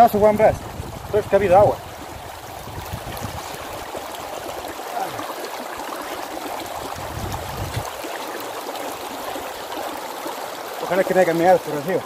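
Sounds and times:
stream running: 0:00.0 - 0:12.0.

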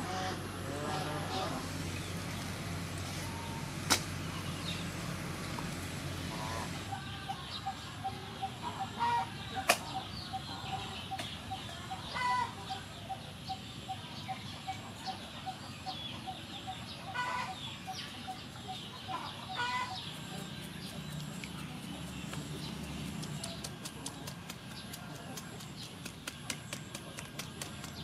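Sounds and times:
small birds chirping: 0:00.9 - 0:28.0
hens clucking: 0:06.3 - 0:28.0.

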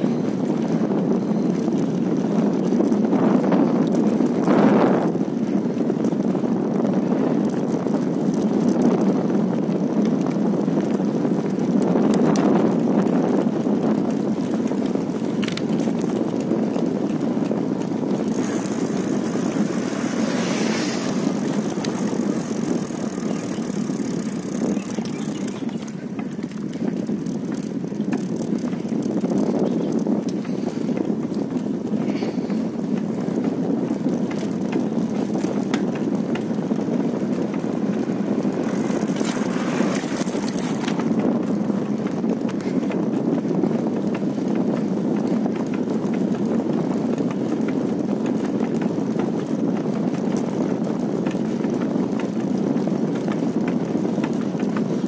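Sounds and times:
bicycle road noise: 0:00.0 - 0:55.0
rushing wind: 0:00.0 - 0:55.0.

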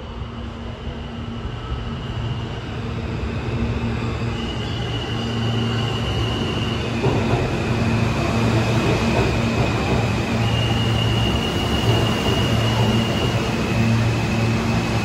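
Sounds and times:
subway train rumble: 0:00.0 - 0:15.0.

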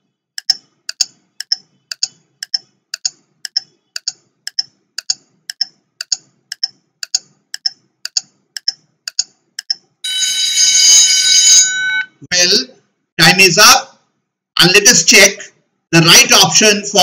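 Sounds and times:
clock ticking: 0:00.4 - 0:09.9
loud time-up buzzer: 0:10.1 - 0:12.2.

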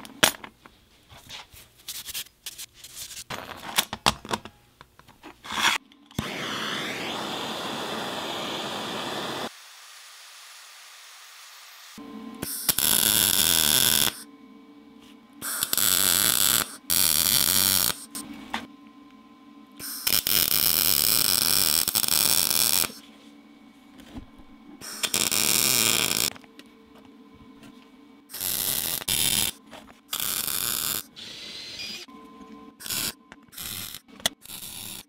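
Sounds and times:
welding arc: 0:06.2 - 0:14.2, 0:15.4 - 0:18.2, 0:19.8 - 0:23.0, 0:24.8 - 0:26.3, 0:28.3 - 0:31.1, 0:32.8 - 0:35.0
low steady hum: 0:12.0 - 0:30.2.

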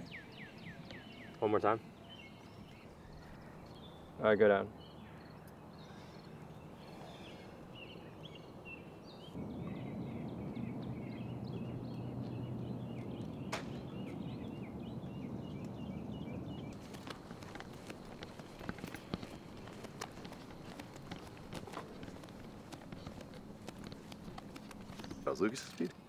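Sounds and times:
small birds chirping: 0:00.0 - 0:26.0
low rumble: 0:09.4 - 0:18.4.

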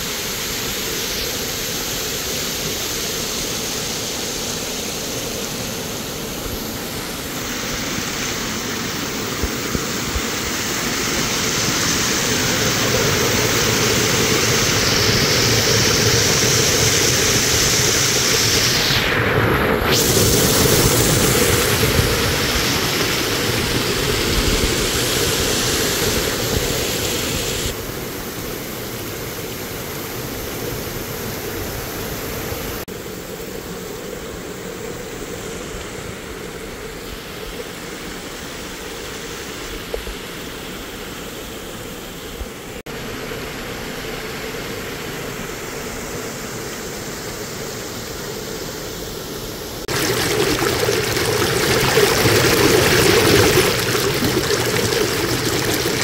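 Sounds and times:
water rushing over stone ledges: 0:00.6 - 0:28.0, 0:49.8 - 0:56.0.

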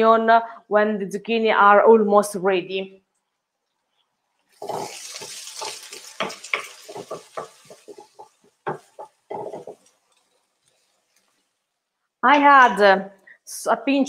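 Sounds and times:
vegetables sizzling in a pan: 0:04.4 - 0:12.0
utensil scraping against pan: 0:04.5 - 0:11.6.

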